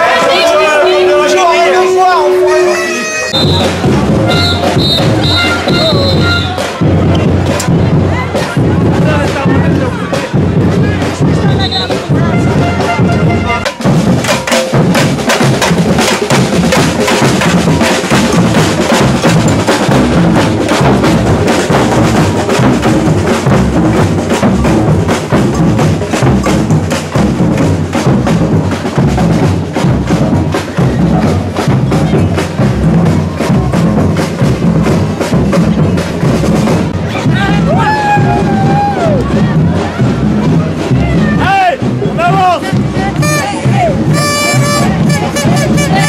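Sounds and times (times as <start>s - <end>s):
bass drums: 0.0s - 46.0s
snare drums: 0.0s - 46.0s.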